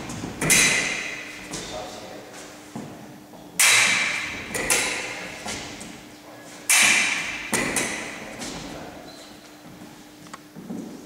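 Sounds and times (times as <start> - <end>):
fencing blades striking: 0.0 - 1.7, 3.5 - 6.0, 6.6 - 8.7.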